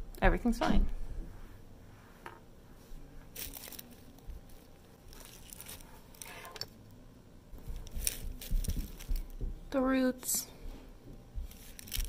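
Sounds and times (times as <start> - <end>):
rustles and scrapes of a plant pot: 1.3 - 6.7, 7.6 - 9.2.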